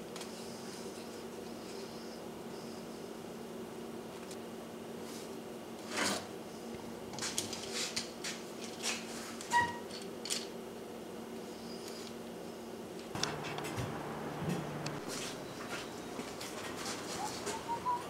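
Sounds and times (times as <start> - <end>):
faint steady hum: 12.4 - 17.4.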